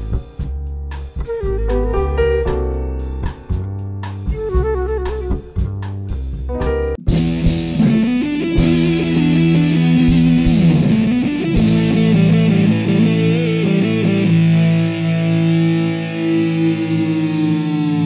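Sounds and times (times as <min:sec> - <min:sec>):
rock music with electric guitar: 0:07.0 - 0:18.0.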